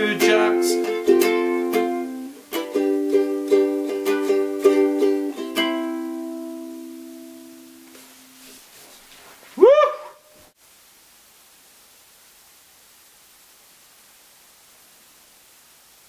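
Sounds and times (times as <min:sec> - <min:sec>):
ukulele strumming: 0:00.0 - 0:08.6
short cry rising and falling: 0:09.5 - 0:10.5.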